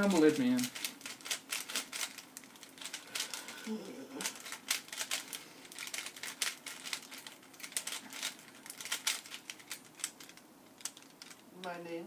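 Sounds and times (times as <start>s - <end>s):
puzzle cube clicking: 0.0s - 3.6s, 4.2s - 11.4s.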